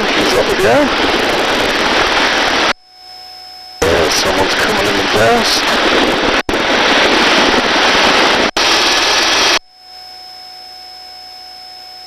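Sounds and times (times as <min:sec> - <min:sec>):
helicopter noise through intercom: 0:00.0 - 0:02.0, 0:03.8 - 0:07.7.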